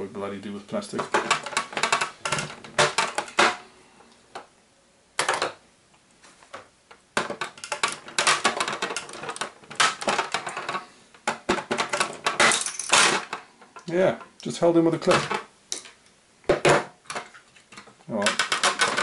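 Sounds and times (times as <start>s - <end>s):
plastic clips clicking and rattling: 1.0s - 3.6s, 7.2s - 13.9s, 17.1s - 19.0s.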